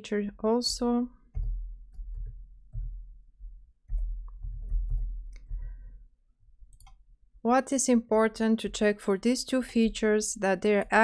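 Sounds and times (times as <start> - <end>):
keyboard typing clicks: 3.9 - 5.6, 6.7 - 7.0.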